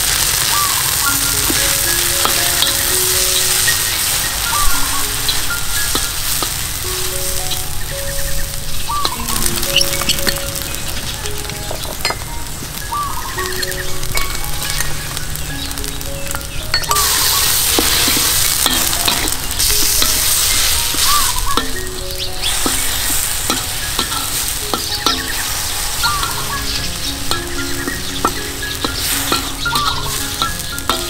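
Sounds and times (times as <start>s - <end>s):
paste sizzling in oil: 0.0s - 31.0s
metal spatula scraping wok: 16.7s - 31.0s.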